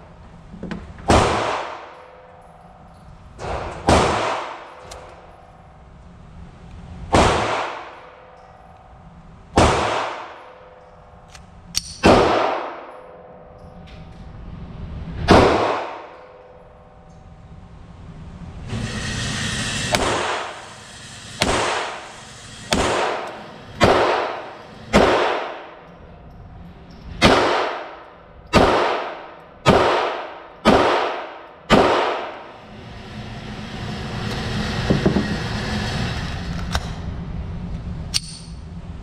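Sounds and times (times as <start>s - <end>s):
pistol shots echoing: 1.1s - 1.9s, 9.6s - 10.3s, 11.8s - 12.9s, 22.7s - 25.8s, 27.2s - 32.4s
magazine clicks: 11.3s - 12.1s, 38.1s - 38.6s.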